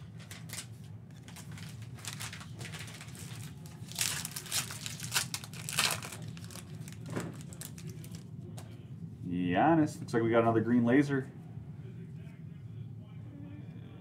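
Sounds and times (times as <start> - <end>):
foil wrapper crinkling: 0.0 - 8.2
low steady hum: 0.0 - 14.0.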